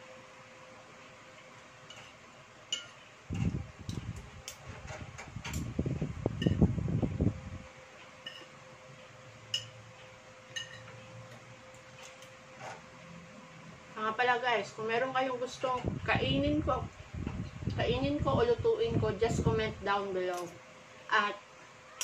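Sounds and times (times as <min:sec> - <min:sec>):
faint steady hum: 0:00.0 - 0:22.0
cutlery clinking on ceramic plate: 0:08.2 - 0:08.6, 0:10.5 - 0:11.0.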